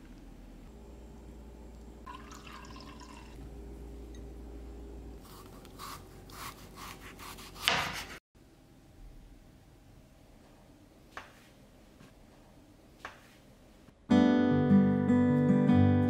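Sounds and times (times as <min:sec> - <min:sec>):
knife cutting squash on board: 0:05.2 - 0:08.2.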